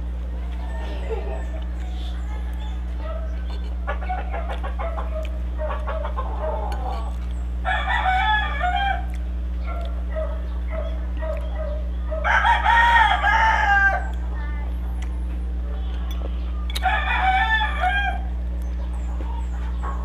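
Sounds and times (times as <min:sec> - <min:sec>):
rooster crowing: 0:00.3 - 0:09.2, 0:10.7 - 0:14.2, 0:16.6 - 0:18.4
faint clucking: 0:00.4 - 0:07.6.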